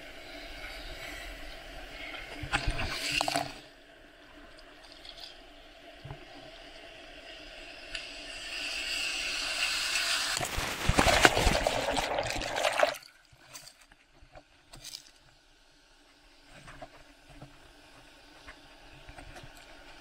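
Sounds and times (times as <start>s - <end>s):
faint water splashes: 10.3s - 14.0s.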